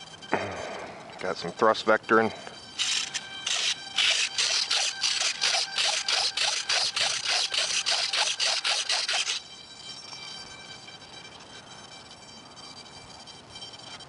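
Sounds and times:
micro servos whirring: 2.6s - 10.7s.

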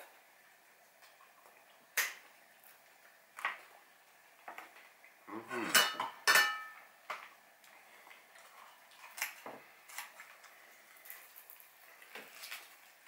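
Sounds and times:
metal cutlery clinking on plate: 5.7s - 6.8s.

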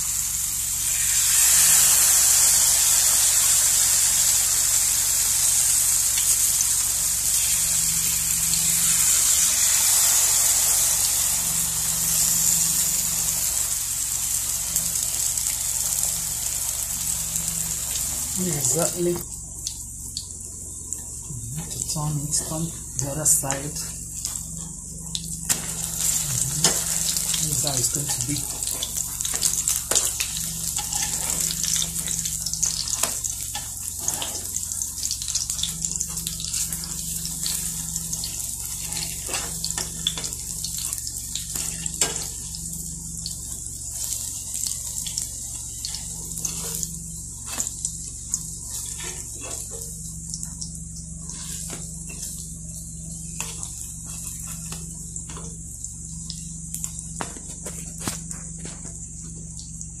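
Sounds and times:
pancakes sizzling in hot oil: 0.0s - 60.0s
oil pops and crackles: 54.7s - 59.7s.

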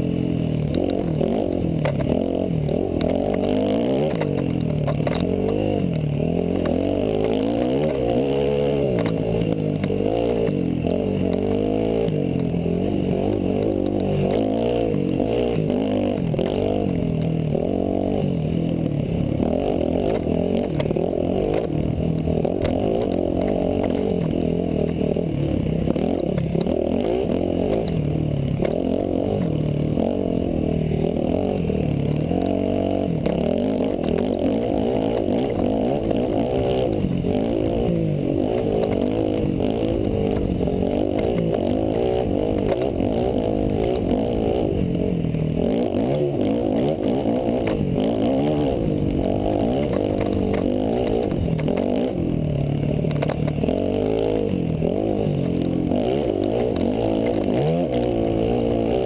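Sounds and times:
dirt bike engine revving: 0.0s - 59.0s.

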